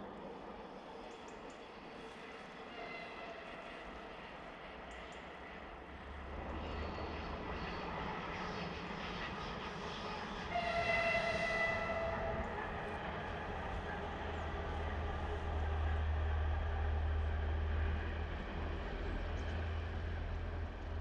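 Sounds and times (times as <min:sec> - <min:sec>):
electric locomotive rumbling: 0:00.0 - 0:21.0
locomotive horn blast: 0:10.5 - 0:12.4.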